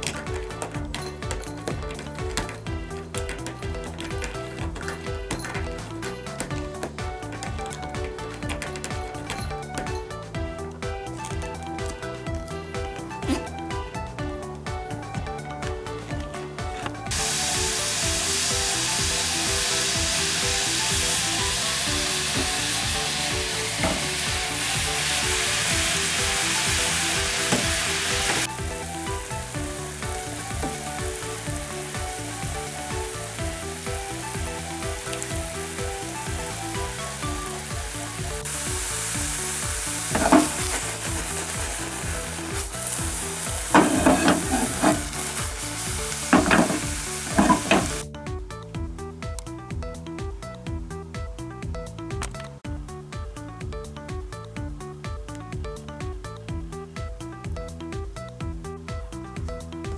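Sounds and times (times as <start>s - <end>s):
background music with steady beat: 0.0s - 59.9s
water boiling in a frying pan: 17.1s - 48.0s.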